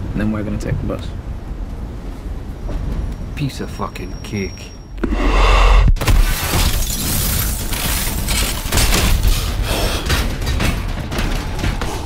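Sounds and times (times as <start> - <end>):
glass shattering: 6.0 - 9.5.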